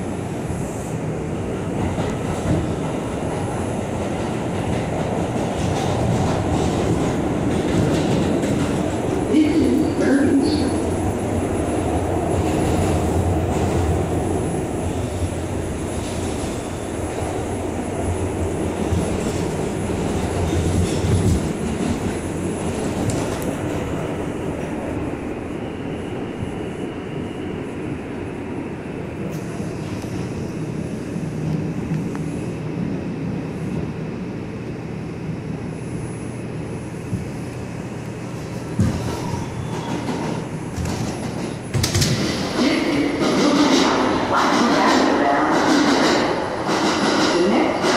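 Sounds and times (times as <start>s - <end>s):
subway wheels rumbling on rail: 0.0s - 47.9s
train knock: 38.7s - 47.9s.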